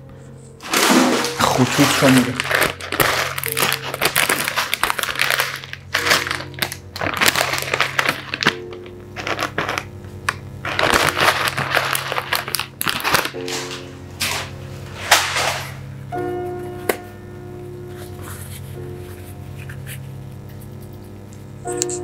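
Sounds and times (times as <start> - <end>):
background music: 0.0 - 9.9, 10.7 - 20.0
plastic bag crinkling: 0.6 - 15.8.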